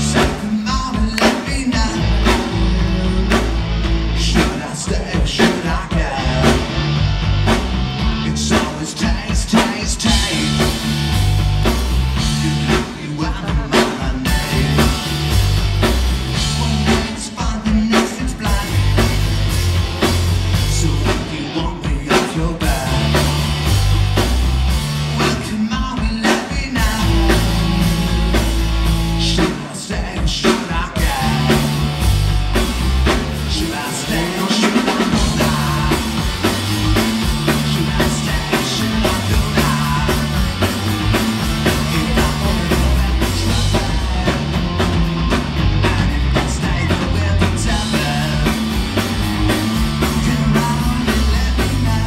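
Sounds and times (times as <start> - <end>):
walking bass line: 0.0 - 25.9, 26.8 - 29.6, 30.7 - 52.0
live rock band playing: 0.0 - 52.0
person singing: 4.2 - 7.0, 8.2 - 11.0, 12.2 - 15.5, 20.5 - 24.0, 25.2 - 28.3, 29.2 - 32.2, 33.4 - 45.0, 45.7 - 48.8, 49.6 - 52.0.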